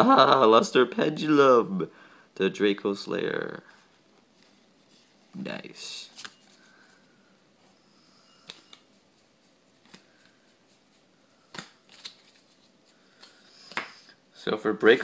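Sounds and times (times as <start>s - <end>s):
cards rustling: 8.4s - 14.0s
cards tapping down: 11.5s - 12.5s.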